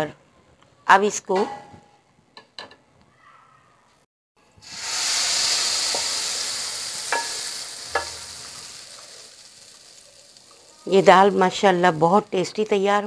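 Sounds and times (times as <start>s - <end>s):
hot oil sizzling: 4.5s - 12.7s.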